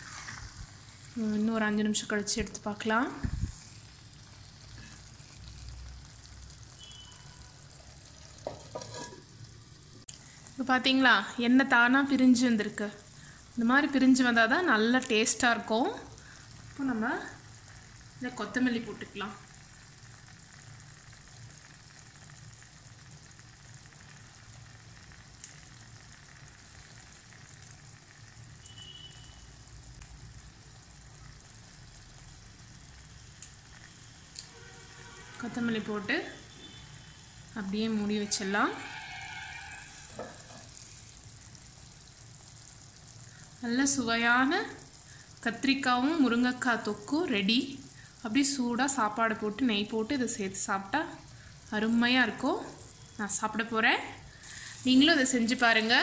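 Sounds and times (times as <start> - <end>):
food simmering with faint sizzle: 0.0 - 56.0
clay lid knocking on pot: 8.4 - 9.2.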